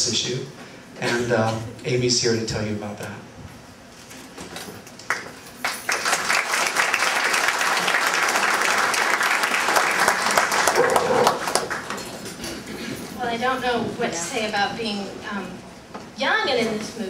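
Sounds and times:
audience applauding: 5.1 - 12.2.

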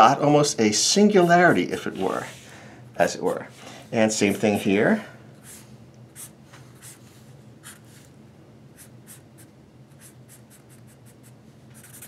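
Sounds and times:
marker scratching on paper: 1.1 - 2.4, 5.4 - 8.0, 8.8 - 12.0.

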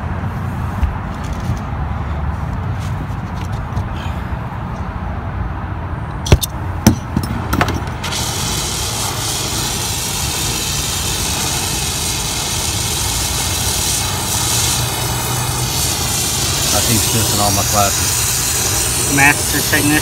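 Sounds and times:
torch hissing roar: 8.0 - 20.0.

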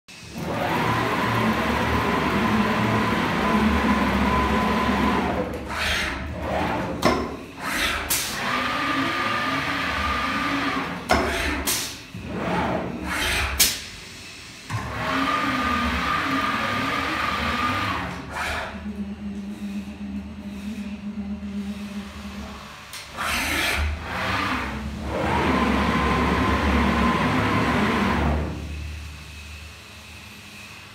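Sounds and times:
sharp air blasts and clicks: 11.1 - 12.1, 13.5 - 14.0.

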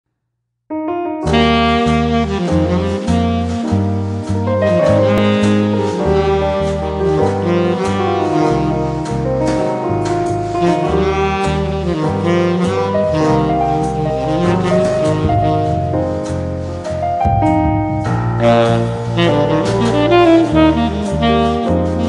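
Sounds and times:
instrumental jazz music: 0.7 - 22.0.

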